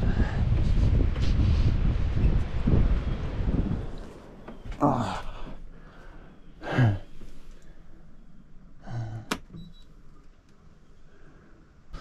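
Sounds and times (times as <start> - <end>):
man exhaling: 4.8 - 7.3.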